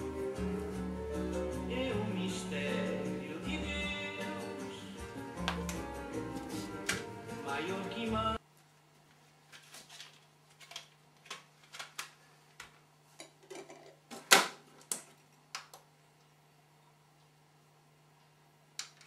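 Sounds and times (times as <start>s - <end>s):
music: 0.0s - 8.4s.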